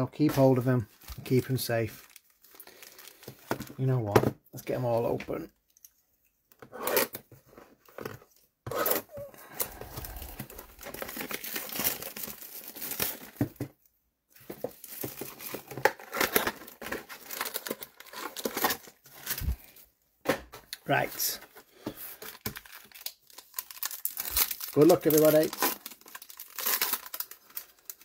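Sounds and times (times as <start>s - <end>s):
card packs rustling: 0.2s - 4.2s, 7.4s - 13.8s, 14.4s - 19.8s, 20.8s - 28.0s
plastic wrapping tearing and crinkling: 1.0s - 3.5s, 8.8s - 13.6s, 14.8s - 19.7s, 22.2s - 28.0s.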